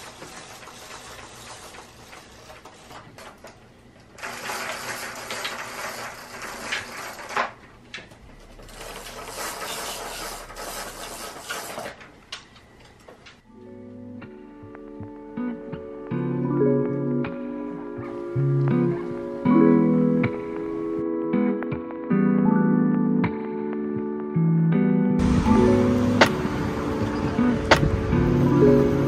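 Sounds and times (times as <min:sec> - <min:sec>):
roller blind chain rattling: 0:00.0 - 0:12.2.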